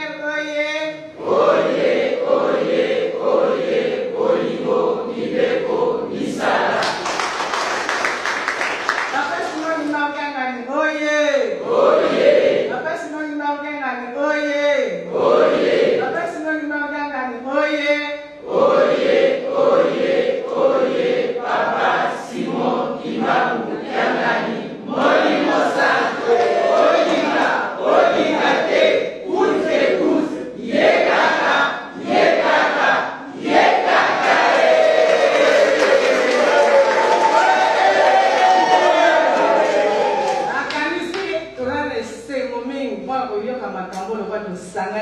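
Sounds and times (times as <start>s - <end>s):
clapping: 6.7s - 9.9s, 34.2s - 37.7s, 38.3s - 41.4s
voices chanting on one pitch: 18.4s - 40.6s
crowd noise: 33.3s - 40.7s
people shouting: 34.4s - 40.6s.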